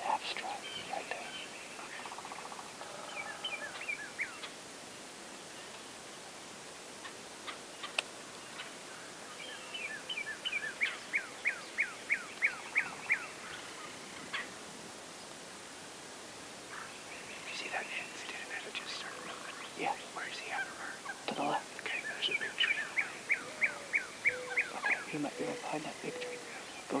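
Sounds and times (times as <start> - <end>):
small bird singing: 0.1 - 4.5, 9.3 - 14.5, 16.7 - 27.0
bird chirps and clicks: 7.8 - 8.7.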